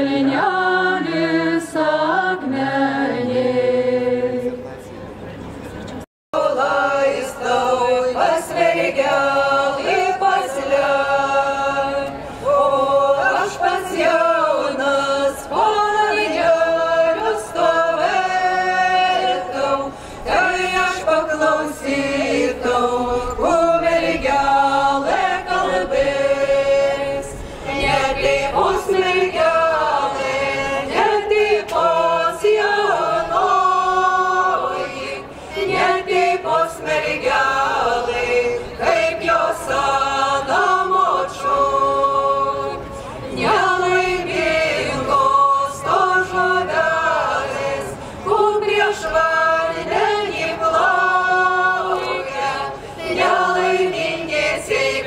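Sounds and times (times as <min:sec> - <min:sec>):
group singing unaccompanied: 0:00.0 - 0:04.7, 0:06.4 - 0:55.0.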